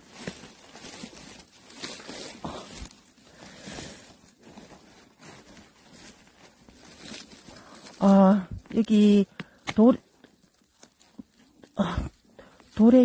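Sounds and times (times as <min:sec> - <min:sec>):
pine needles rustling and crackling: 0:00.0 - 0:13.0.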